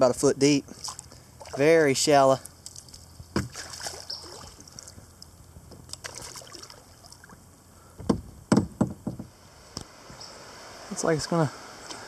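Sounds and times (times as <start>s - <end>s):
deep thumps and splashes: 3.3s - 5.0s, 5.9s - 7.4s
paddle splashing in water: 3.4s - 4.9s, 6.0s - 7.4s
small knocks: 8.0s - 9.3s.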